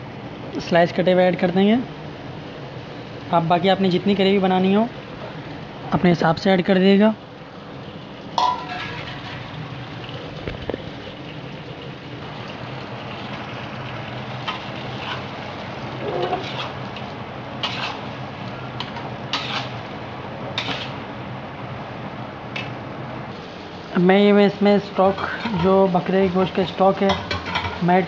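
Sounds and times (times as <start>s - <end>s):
meat sizzling in hot oil: 1.9s - 28.0s
metal ladle scraping pan: 8.4s - 9.4s, 14.5s - 15.3s, 16.0s - 16.8s, 17.6s - 18.1s, 18.9s - 19.8s, 20.6s - 21.0s, 25.1s - 25.8s.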